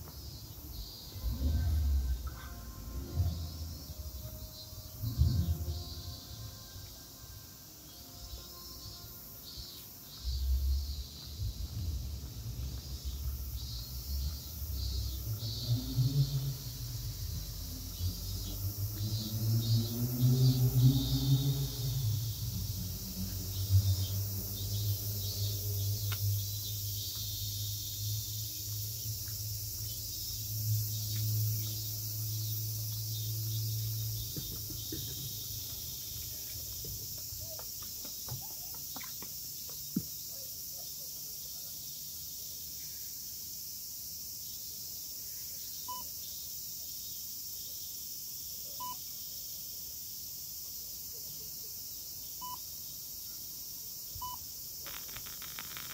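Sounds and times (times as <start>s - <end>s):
cicadas singing: 0.0s - 55.9s
low steady hum: 0.5s - 36.7s.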